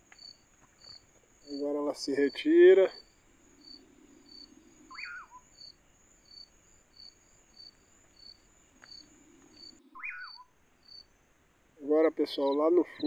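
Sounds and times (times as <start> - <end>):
faint cricket chirping: 0.0 - 13.0
high insect whine: 0.0 - 13.0
bird call rising and falling: 3.8 - 5.6, 9.3 - 10.6.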